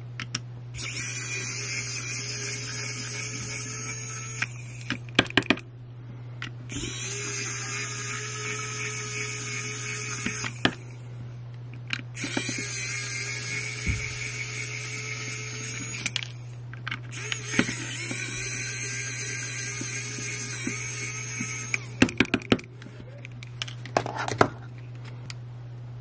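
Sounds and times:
electric screwdriver whirring: 0:00.8 - 0:05.6, 0:06.7 - 0:11.0, 0:11.9 - 0:24.2
clicks of bit and screws: 0:06.7 - 0:10.9, 0:11.7 - 0:25.4.

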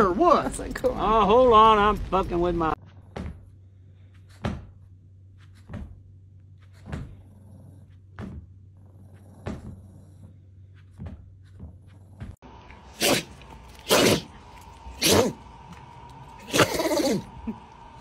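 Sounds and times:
low hum: 0:04.7 - 0:18.0.

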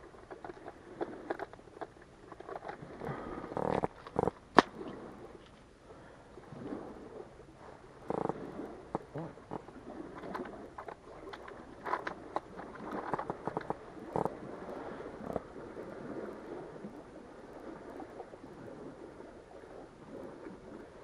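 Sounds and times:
small clicks and rustles: 0:00.0 - 0:04.7, 0:05.4 - 0:05.7, 0:08.1 - 0:14.3.

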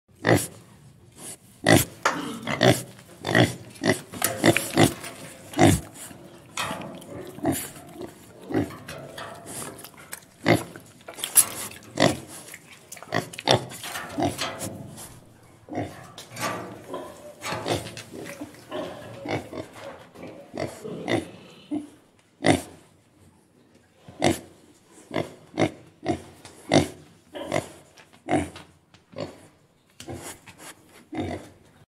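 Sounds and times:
pig grunting: 0:01.6 - 0:15.0, 0:15.7 - 0:22.7, 0:25.1 - 0:28.6.

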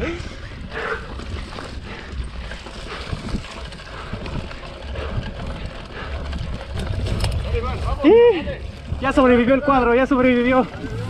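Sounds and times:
bike tyres on dirt and leaves: 0:00.0 - 0:11.0
wind rumbling on microphone: 0:00.0 - 0:11.0
bike knocking over bumps: 0:02.5 - 0:08.3.

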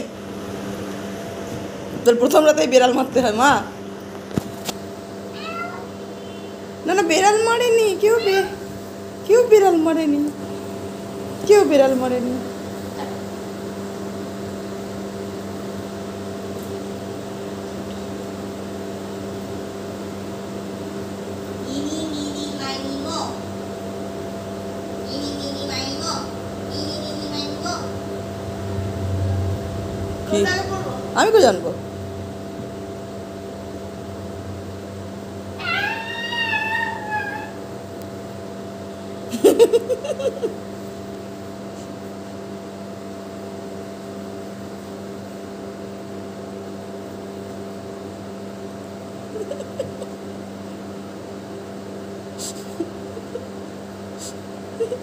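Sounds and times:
mechanical hum with low drone: 0:00.0 - 0:55.0
kitten meowing: 0:05.4 - 0:05.9, 0:35.6 - 0:37.6
woman laughing: 0:39.3 - 0:40.6, 0:49.3 - 0:50.2, 0:52.4 - 0:53.6, 0:54.2 - 0:55.0.

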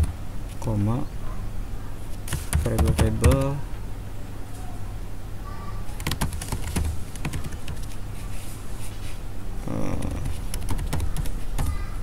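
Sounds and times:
steady low hum: 0:00.0 - 0:12.0
computer keyboard typing: 0:02.3 - 0:03.6, 0:06.0 - 0:08.0, 0:09.9 - 0:11.8.

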